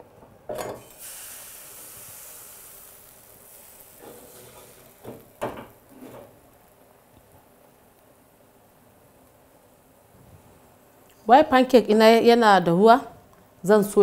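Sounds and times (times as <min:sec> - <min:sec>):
batter sizzling in frying pan: 0:00.7 - 0:11.2.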